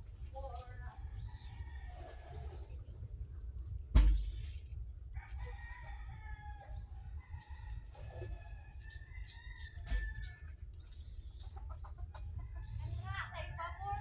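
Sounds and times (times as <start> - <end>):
sharp thump: 3.9 - 4.5
rooster crowing: 5.2 - 10.5.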